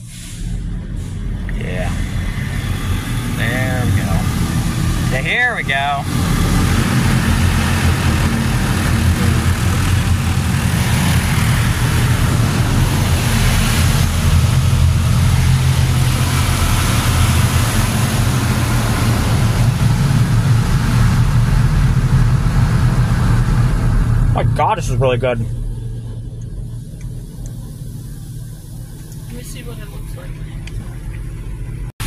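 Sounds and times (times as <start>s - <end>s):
car wash machinery rumbling: 0.0s - 32.0s
water spraying against car: 2.0s - 23.1s.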